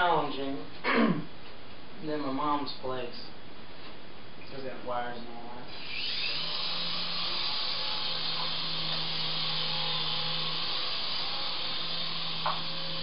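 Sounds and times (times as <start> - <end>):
toy helicopter rotor whirring: 5.7 - 13.0.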